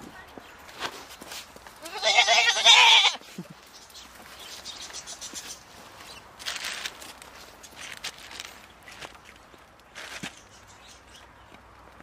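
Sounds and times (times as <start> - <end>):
goat bleating: 1.8 - 3.3.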